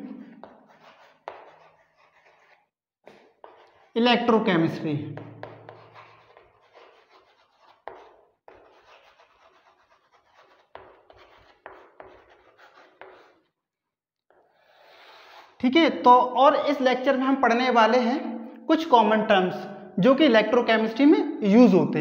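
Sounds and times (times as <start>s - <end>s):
chalk scratching on chalkboard: 0.0s - 4.0s, 5.2s - 13.6s, 14.3s - 15.6s
chalk tapping: 0.1s - 3.9s, 5.2s - 13.5s.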